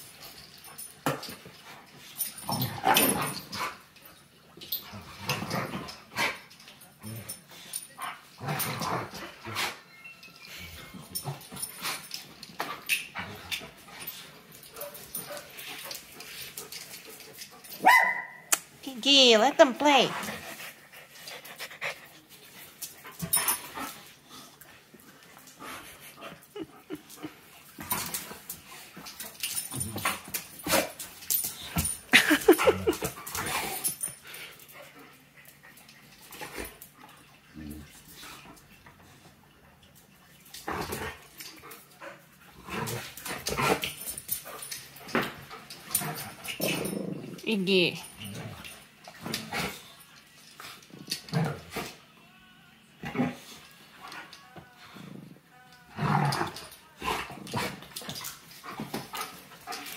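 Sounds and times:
dogs yipping and whining: 0:08.6 - 0:16.1, 0:16.8 - 0:18.6.

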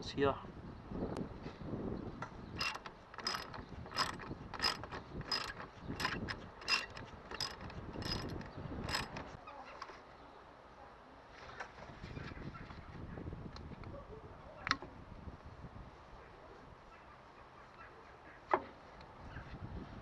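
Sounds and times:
ratchet clicking: 0:02.6 - 0:09.4.

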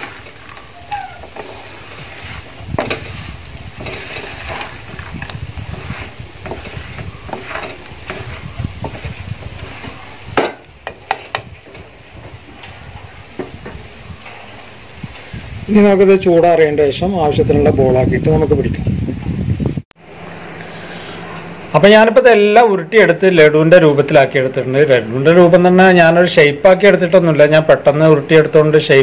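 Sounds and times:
wooden spatula scraping metal pan: 0:00.0 - 0:15.5.

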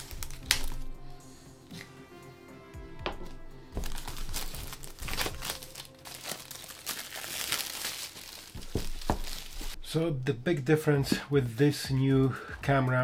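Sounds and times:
plastic wrapping crinkling: 0:00.0 - 0:00.9, 0:03.7 - 0:09.8
soft background music: 0:00.0 - 0:13.0.

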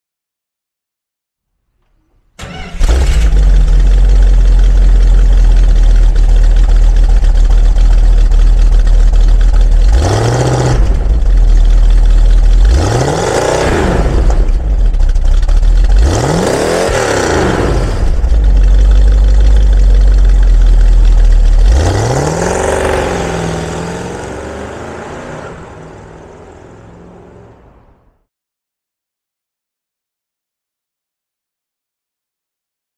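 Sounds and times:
car engine idling and revving: 0:02.4 - 0:28.2
car pulling away: 0:02.4 - 0:28.2.

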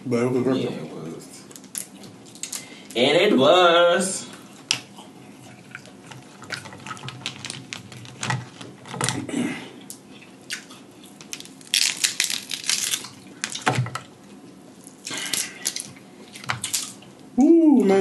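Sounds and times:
crab shells cracking: 0:05.8 - 0:09.3, 0:09.9 - 0:14.2, 0:14.8 - 0:17.1.

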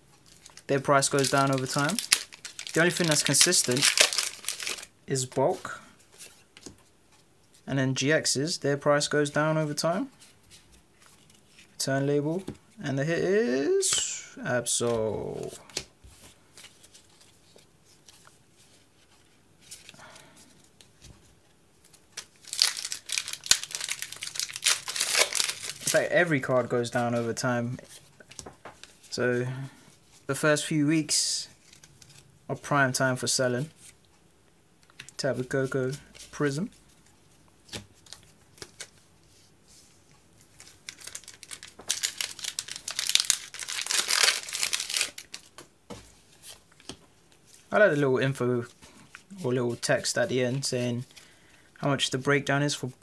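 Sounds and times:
trading cards rustling: 0:00.2 - 0:06.7, 0:21.8 - 0:29.1, 0:40.4 - 0:48.2
foil wrapper crinkling and tearing: 0:00.3 - 0:04.9, 0:22.2 - 0:26.1, 0:40.6 - 0:45.6.

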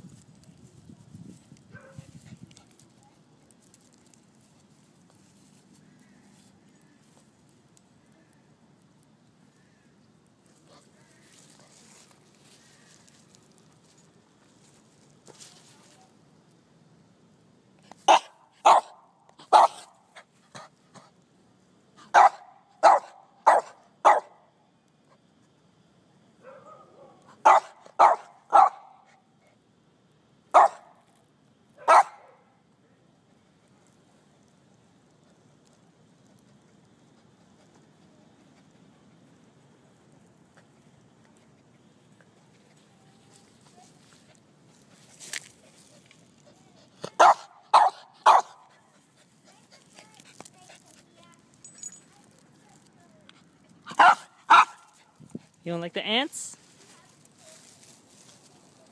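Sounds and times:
small dog barking: 0:01.7 - 0:02.1, 0:18.1 - 0:20.0, 0:22.1 - 0:24.4, 0:26.4 - 0:29.2, 0:30.5 - 0:31.0, 0:31.8 - 0:32.5, 0:47.0 - 0:48.7, 0:53.9 - 0:55.0.

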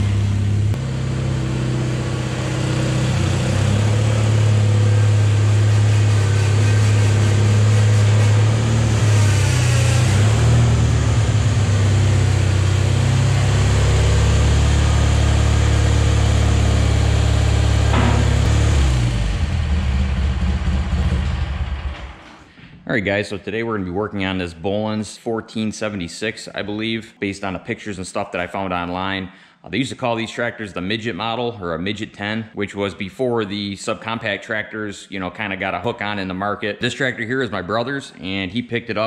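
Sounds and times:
garden tractor engine running: 0:00.0 - 0:22.0.

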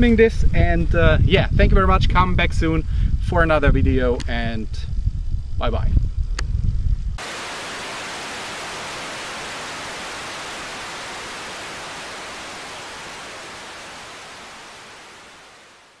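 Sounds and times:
video static hiss: 0:07.2 - 0:16.0.

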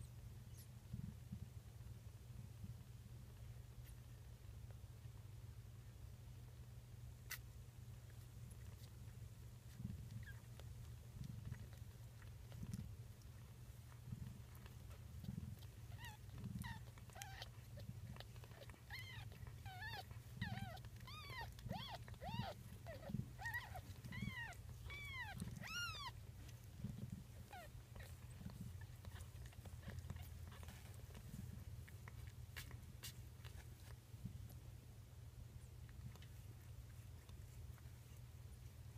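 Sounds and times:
kittens mewing: 0:15.9 - 0:31.2.

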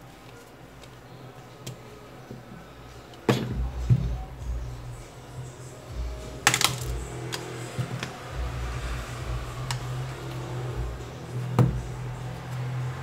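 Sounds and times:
steady low hum: 0:01.1 - 0:13.0
plastic clips snapping loose: 0:06.5 - 0:08.2.

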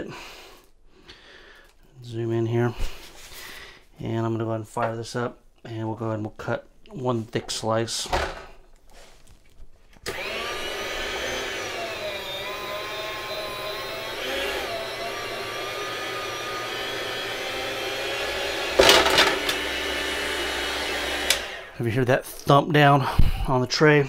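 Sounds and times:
electric meat slicer whining: 0:10.0 - 0:21.8.

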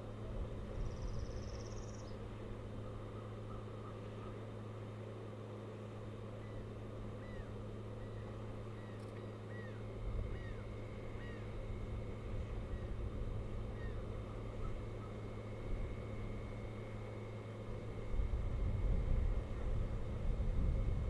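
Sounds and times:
low electrical hum: 0:00.0 - 0:21.0
osprey whistled chirps: 0:00.9 - 0:02.2.

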